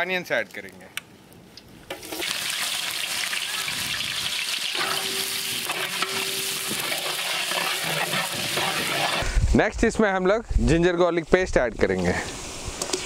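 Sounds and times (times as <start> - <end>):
onions sizzling in hot oil: 2.0 - 9.2
metal ladle stirring: 4.7 - 9.2.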